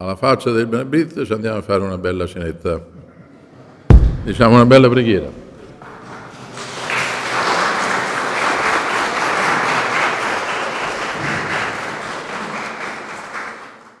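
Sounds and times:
audience applauding: 0:05.8 - 0:14.0.

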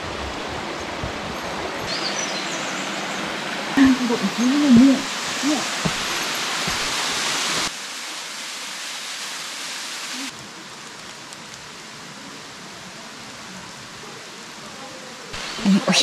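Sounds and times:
waterfall rushing: 0:00.0 - 0:10.4, 0:15.3 - 0:16.0.

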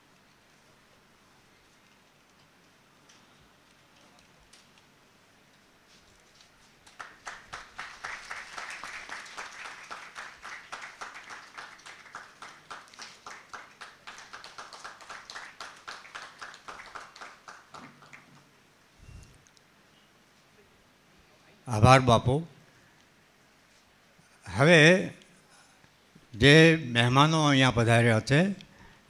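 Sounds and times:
audience applauding: 0:06.8 - 0:18.5.

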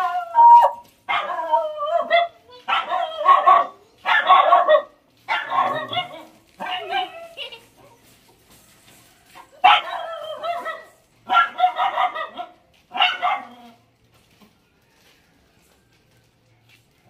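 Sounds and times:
dogs barking: 0:01.1 - 0:07.3, 0:09.6 - 0:13.7.

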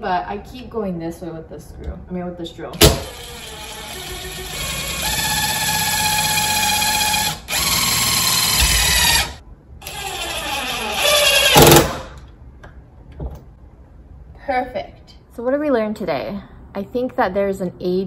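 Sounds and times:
cordless drill whining: 0:03.1 - 0:11.9.

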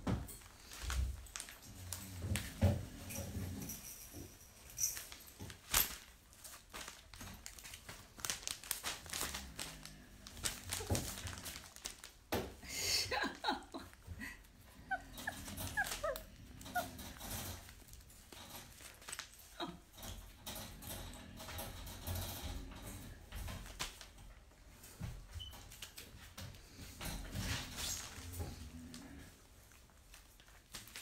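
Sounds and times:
puppy whimpering and yipping: 0:14.8 - 0:17.2.

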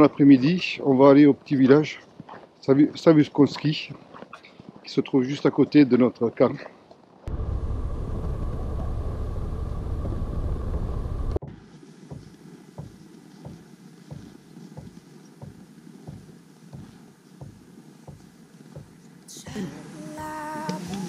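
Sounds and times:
low vehicle rumble: 0:07.3 - 0:11.4
footsteps on packed snow: 0:11.4 - 0:19.3.

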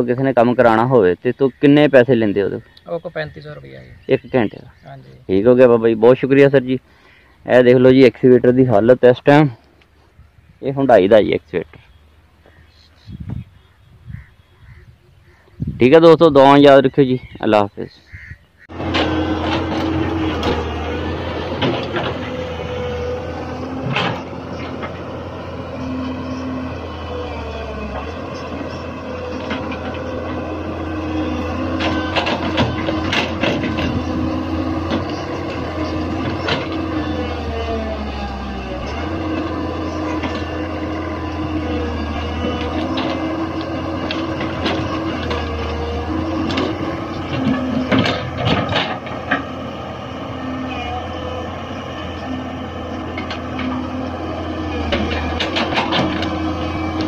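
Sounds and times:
diesel engine under load: 0:00.0 - 0:13.4, 0:14.1 - 0:57.0
hydraulic whining: 0:18.7 - 0:57.0
metallic knocks and clanks: 0:31.8 - 0:34.0, 0:46.4 - 0:49.5, 0:54.9 - 0:56.4.

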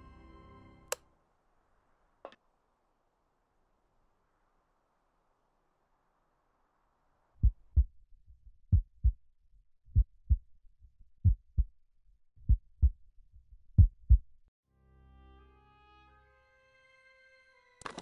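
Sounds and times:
heartbeat thumps: 0:07.4 - 0:08.0, 0:08.7 - 0:09.2, 0:09.9 - 0:10.5, 0:11.2 - 0:11.7, 0:12.4 - 0:13.0, 0:13.7 - 0:14.3.

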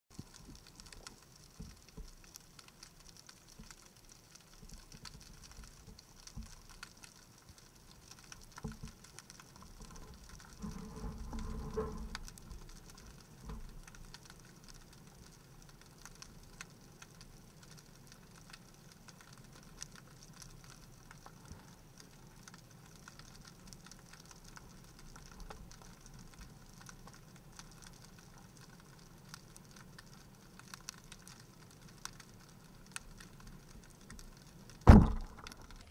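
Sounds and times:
underwater crackle of clicks: 0:00.1 - 0:35.9
low rumble: 0:34.9 - 0:35.9.

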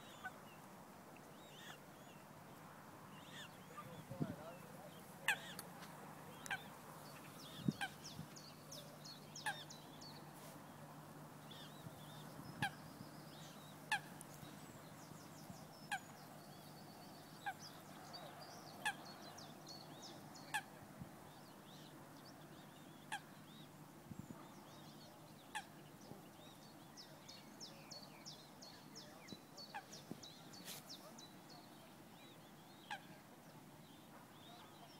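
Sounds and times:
waterbird honking: 0:05.2 - 0:05.6.

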